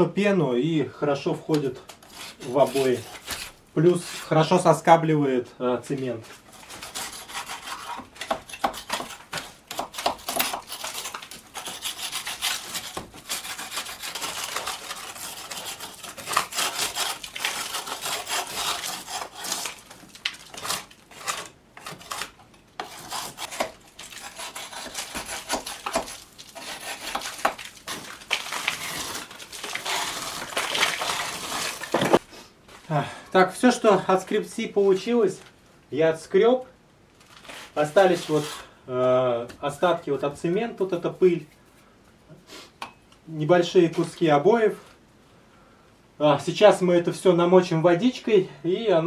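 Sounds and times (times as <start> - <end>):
metal spatula scraping wood: 1.8 - 4.6, 6.0 - 32.3, 37.4 - 38.7.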